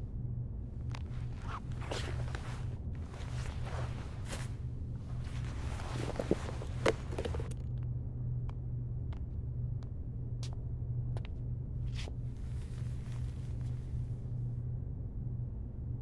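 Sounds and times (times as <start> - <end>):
low rumble: 0.0 - 16.0
rustling: 0.9 - 7.5.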